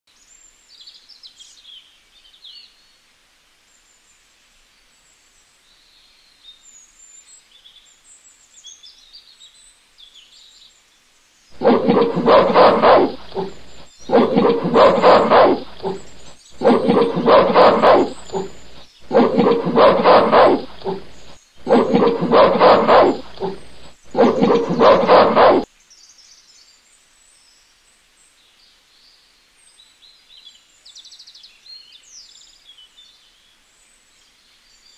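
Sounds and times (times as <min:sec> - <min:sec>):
gorilla roar: 0:11.6 - 0:25.6
faint bird chirping: 0:11.6 - 0:26.1.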